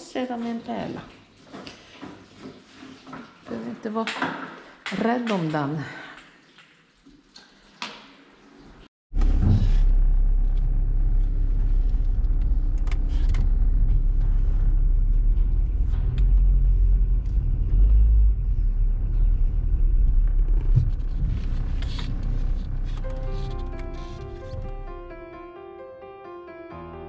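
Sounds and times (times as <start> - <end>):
car engine and road rumble: 9.2 - 25.1.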